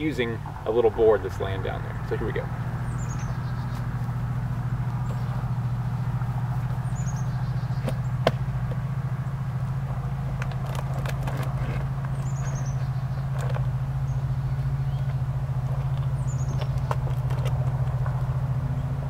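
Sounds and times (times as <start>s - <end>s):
low mechanical motor hum: 0.0s - 19.0s
knocks and scuffs on tree trunk: 7.8s - 8.8s.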